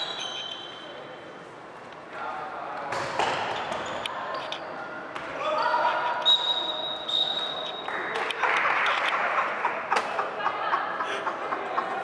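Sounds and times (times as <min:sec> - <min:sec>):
ball bounces and knocks: 0:02.9 - 0:03.9.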